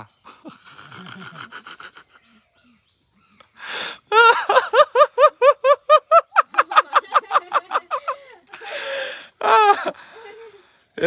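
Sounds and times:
sharp breath in: 3.6 - 4.0, 8.6 - 9.4
child laughing: 4.1 - 8.7.

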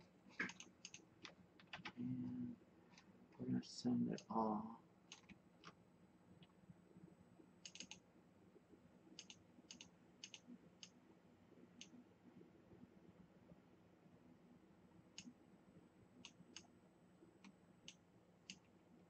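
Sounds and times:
room hiss: 0.0 - 19.0
computer mouse clicks: 0.4 - 2.0, 5.1 - 5.8, 7.6 - 8.0, 9.2 - 11.0, 16.2 - 16.7, 17.4 - 18.7.

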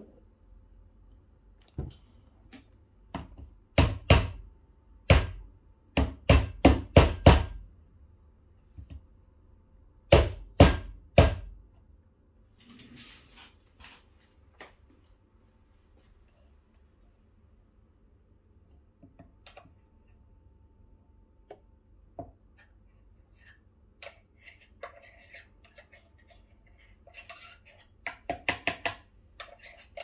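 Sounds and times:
faint scraping rustle: 12.6 - 14.4.

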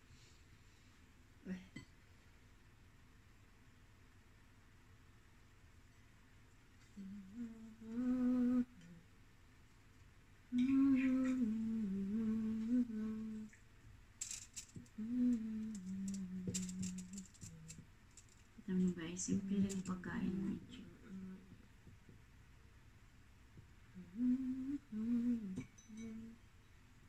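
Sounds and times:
woman humming a tune: 7.0 - 9.1, 10.5 - 13.5, 14.9 - 17.8, 19.3 - 21.6, 23.9 - 26.4.

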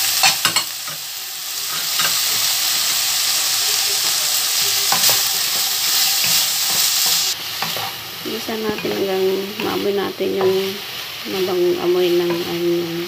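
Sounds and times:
meat and onion sizzling in oil: 0.0 - 13.0
wooden spatula scraping a wok: 4.5 - 12.7.

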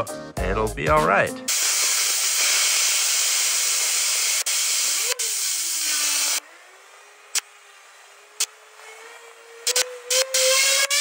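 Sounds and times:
high-pressure water jet hissing: 1.5 - 8.5, 9.6 - 11.0.

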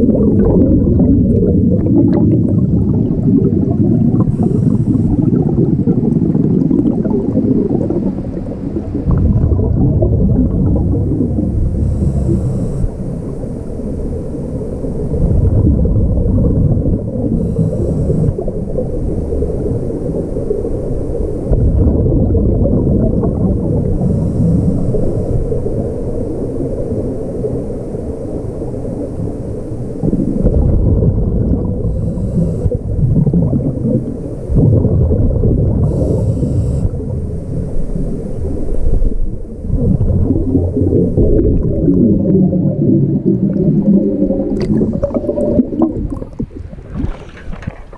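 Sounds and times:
exhaled bubbles gushing: 0.0 - 47.9
regulator inhale hiss: 4.2 - 5.4, 11.6 - 13.4, 17.3 - 18.4, 24.0 - 25.6, 31.8 - 33.0, 35.8 - 37.1.

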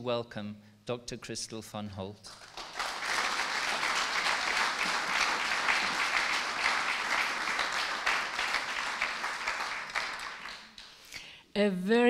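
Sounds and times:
audience applauding: 2.3 - 11.1.

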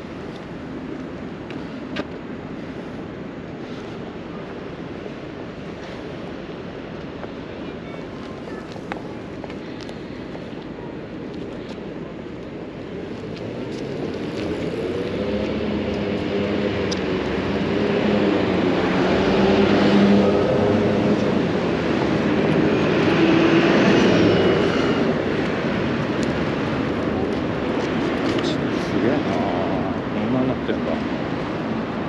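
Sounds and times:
passing vehicle engine hum: 12.9 - 32.0.

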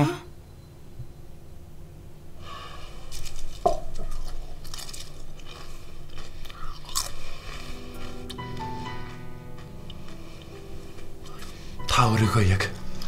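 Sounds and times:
person crunching food: 2.7 - 11.8.

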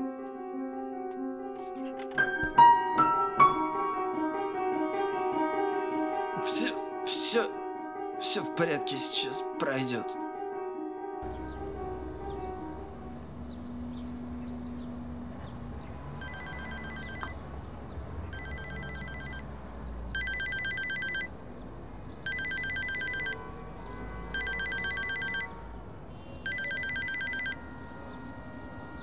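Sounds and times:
phone ringtone trilling bell: 16.2 - 17.3, 18.3 - 19.4, 20.2 - 21.3, 22.3 - 23.4, 24.4 - 25.5, 26.5 - 27.7.

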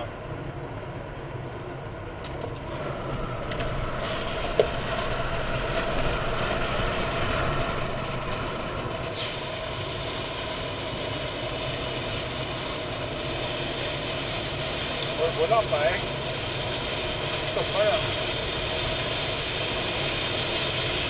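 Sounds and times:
car interior road noise: 0.0 - 21.0
brief hiss: 9.1 - 9.5.

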